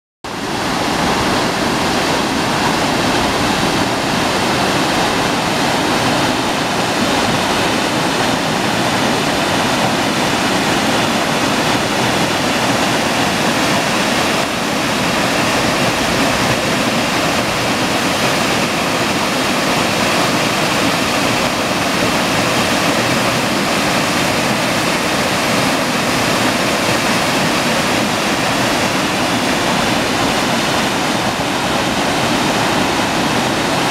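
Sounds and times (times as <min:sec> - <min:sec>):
waterfall rushing over rocks: 0:00.3 - 0:33.9.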